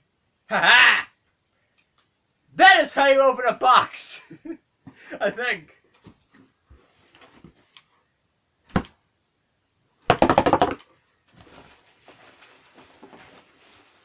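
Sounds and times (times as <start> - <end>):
cardboard packing rustling: 11.2 - 14.0.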